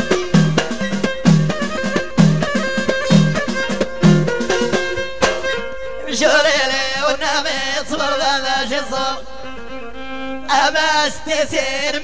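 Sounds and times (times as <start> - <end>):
violin melody: 0.0 - 6.2, 9.3 - 11.1
chant-like singing: 6.1 - 9.4, 10.5 - 12.0.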